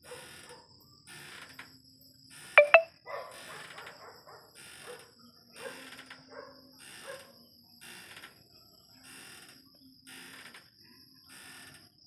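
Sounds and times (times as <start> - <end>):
dog barking: 0.0 - 0.7, 3.1 - 7.4.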